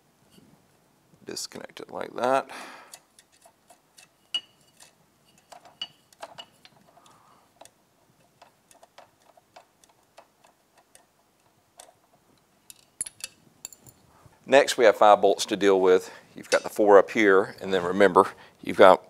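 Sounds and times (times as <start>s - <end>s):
wrench clicking on a nut: 8.4s - 12.0s.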